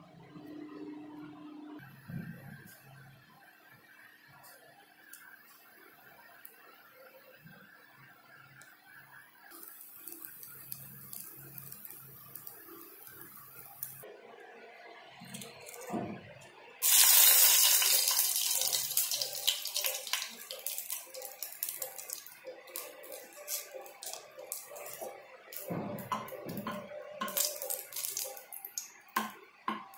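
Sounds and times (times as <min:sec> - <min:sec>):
hot oil sizzling in a frying pan: 0:09.5 - 0:14.0, 0:16.8 - 0:25.7, 0:27.2 - 0:29.2
oil popping and crackling: 0:09.5 - 0:14.0, 0:16.8 - 0:29.9.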